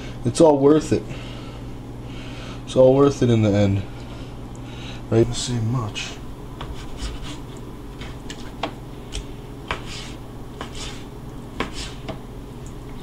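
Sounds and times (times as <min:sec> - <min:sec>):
knife slicing scrapes: 0:06.6 - 0:12.2.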